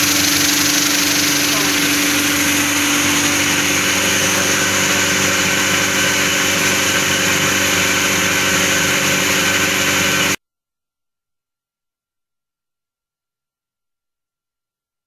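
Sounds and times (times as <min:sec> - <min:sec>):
motor hum: 0:00.0 - 0:10.4
parts and media churning hiss: 0:00.0 - 0:10.4.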